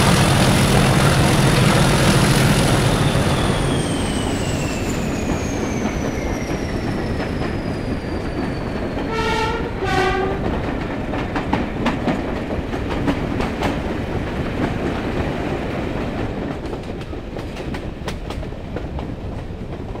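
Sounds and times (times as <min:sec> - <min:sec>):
locomotive engine and wheels rumbling: 0:00.0 - 0:20.0
train horn: 0:09.1 - 0:10.8
wheels clicking over rail joints: 0:10.4 - 0:20.0.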